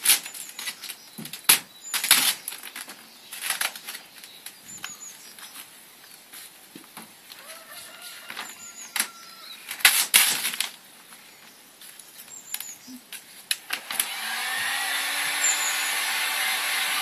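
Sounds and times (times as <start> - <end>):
hot-air gun fan hissing: 13.8 - 17.0.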